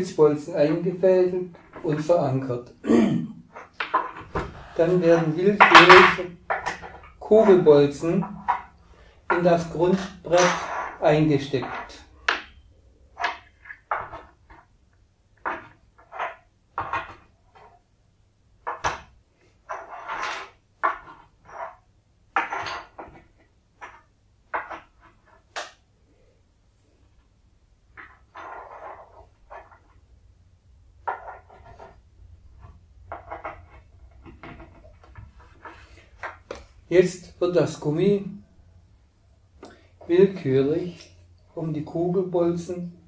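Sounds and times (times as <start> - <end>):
wooden pins knocking into board: 3.5 - 4.6, 5.2 - 14.7, 15.4 - 17.7, 18.6 - 25.8, 32.6 - 36.7.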